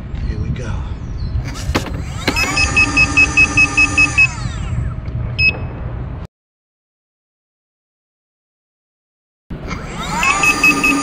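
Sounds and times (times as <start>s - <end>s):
electric motor whining: 1.8s - 4.9s, 9.6s - 11.0s
rapid alarm beeps: 2.4s - 4.3s, 10.2s - 11.0s.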